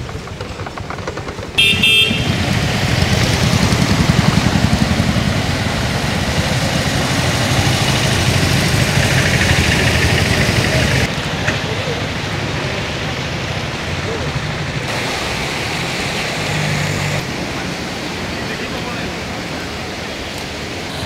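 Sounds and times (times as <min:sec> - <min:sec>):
vehicle engines running: 0:00.0 - 0:21.0
wheels splashing through water: 0:00.0 - 0:21.0
vehicle horn toot: 0:01.6 - 0:02.6.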